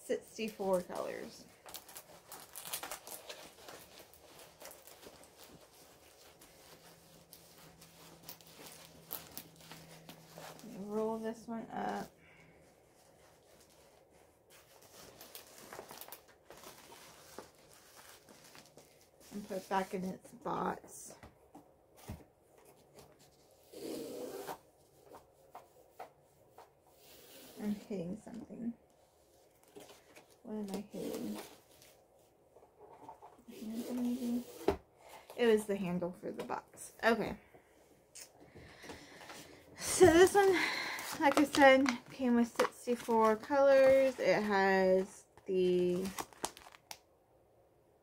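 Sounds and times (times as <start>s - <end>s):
canvas rustling: 0.4s - 20.0s
rolled canvas rubbing and sliding: 33.5s - 34.8s.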